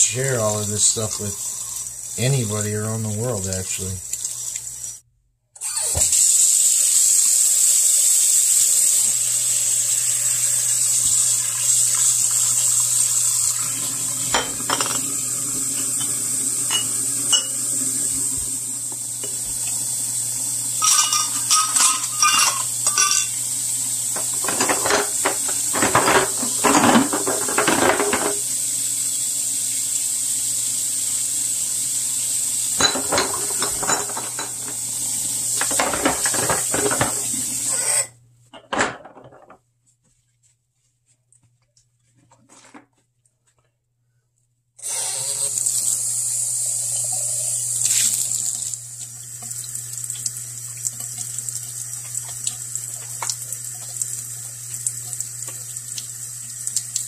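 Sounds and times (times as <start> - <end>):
tap water running into sink: 0.0 - 5.0, 5.7 - 37.9, 44.8 - 57.0
glass jars clinking: 14.3 - 15.1, 15.9 - 17.6, 20.8 - 23.4, 24.2 - 28.4, 32.8 - 34.8.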